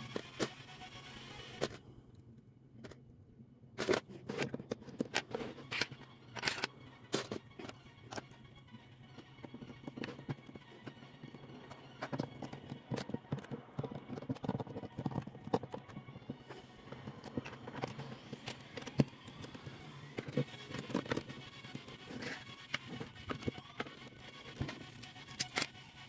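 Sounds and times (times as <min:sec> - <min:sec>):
plastic toy bricks clicking: 0:03.8 - 0:08.3.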